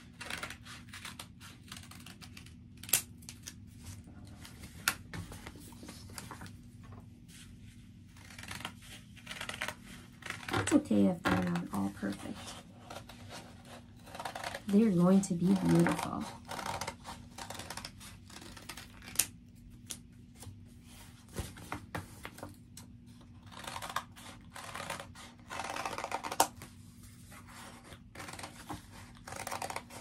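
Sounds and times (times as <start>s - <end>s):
scissors cutting paper: 0.0s - 3.6s, 8.1s - 20.0s, 23.2s - 26.6s, 27.3s - 30.0s
paper sheets rustling: 4.3s - 7.6s.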